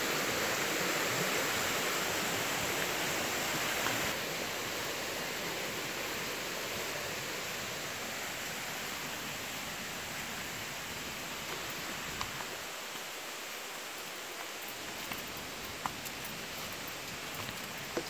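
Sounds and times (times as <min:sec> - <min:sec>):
stream rushing over rocks: 0:00.0 - 0:18.0.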